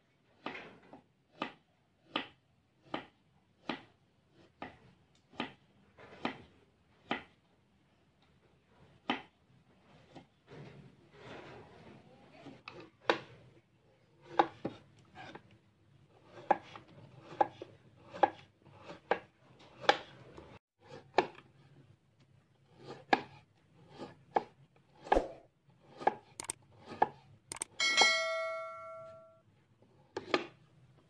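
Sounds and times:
knife chopping on wooden board: 1.3s - 7.3s, 14.2s - 15.4s, 16.2s - 20.2s, 22.8s - 27.6s.

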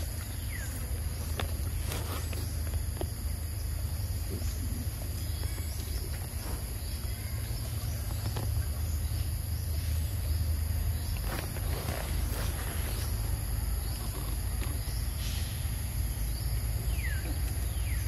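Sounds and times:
constant low rumble: 0.0s - 18.0s
high-pitched insect chorus: 0.0s - 18.0s.

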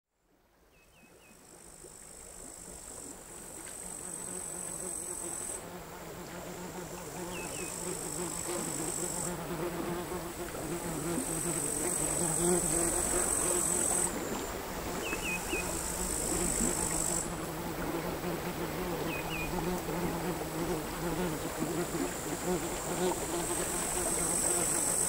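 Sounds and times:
sea waves lapping: 10.1s - 25.0s
crickets singing: 10.9s - 17.4s, 19.0s - 19.8s.

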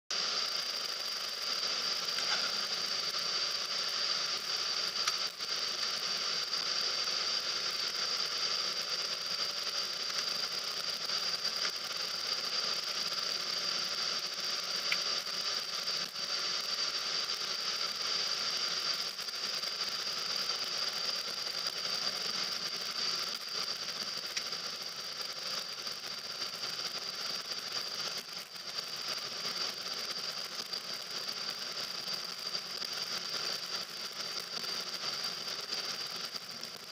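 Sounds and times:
high-pitched whine: 0.1s - 36.9s
car cabin road hiss: 0.2s - 16.4s.

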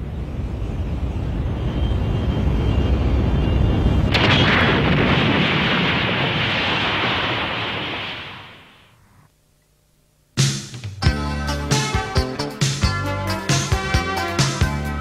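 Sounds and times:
faint high whine: 0.0s - 5.1s
explosion blast: 4.0s - 8.9s.

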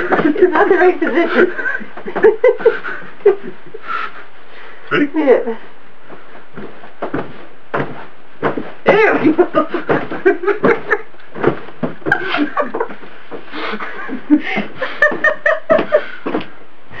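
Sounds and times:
people laughing: 0.0s - 3.8s, 9.3s - 11.1s, 12.1s - 13.0s, 13.6s - 16.4s.

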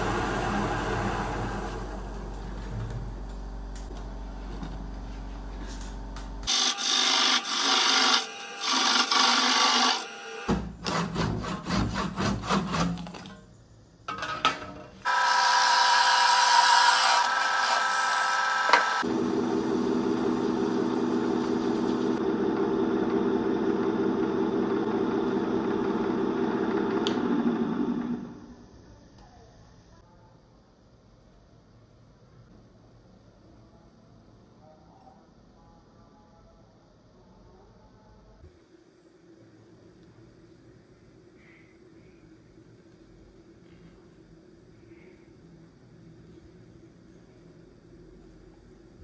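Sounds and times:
wood lathe humming: 0.0s - 2.4s, 6.5s - 10.5s, 15.1s - 28.3s
handsaw cutting wood: 6.5s - 13.0s.

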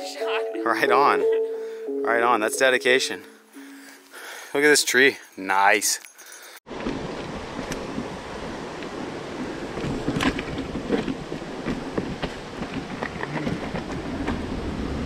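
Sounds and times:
wind rush on microphone: 6.7s - 15.0s.

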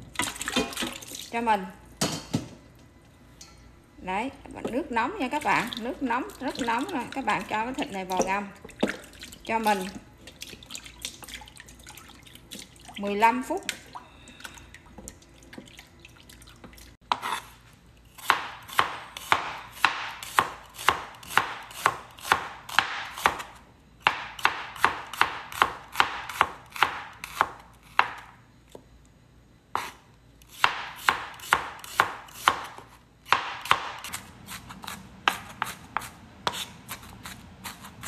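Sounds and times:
cleaver chopping on cutting board: 18.2s - 28.2s, 30.6s - 38.0s.

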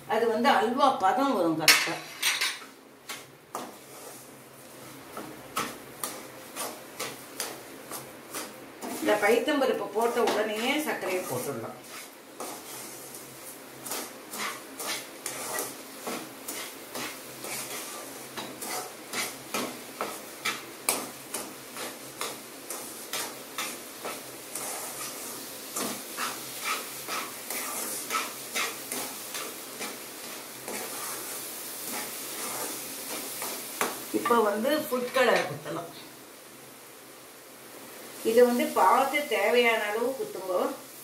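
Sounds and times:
spatula scraping a pan: 1.7s - 34.1s.

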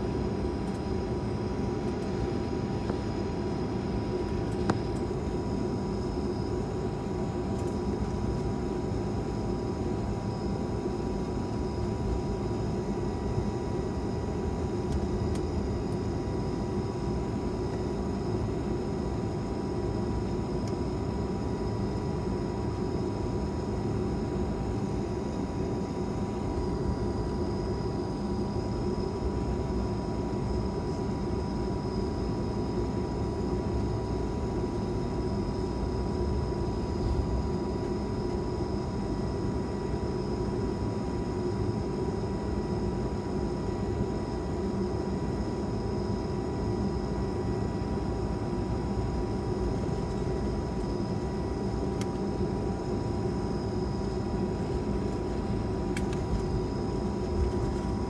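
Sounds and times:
jet engines idling rumble: 0.0s - 30.5s, 42.9s - 58.0s.

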